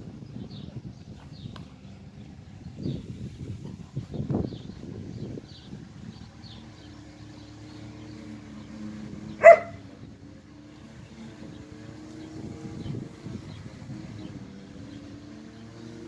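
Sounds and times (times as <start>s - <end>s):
dog barking: 9.4s - 9.8s.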